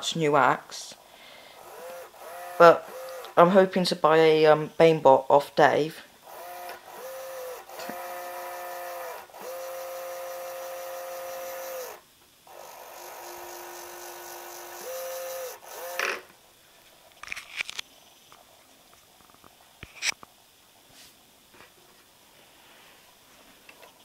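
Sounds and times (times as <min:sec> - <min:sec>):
gear motor whining: 0:01.6 - 0:03.4, 0:06.2 - 0:16.3.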